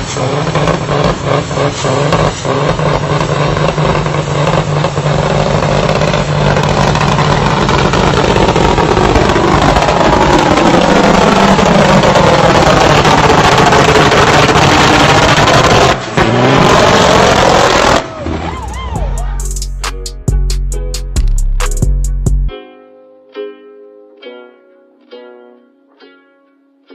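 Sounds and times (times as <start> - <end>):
spinning tyres hissing: 0.0 - 19.9
truck diesel engine roaring: 0.0 - 22.5.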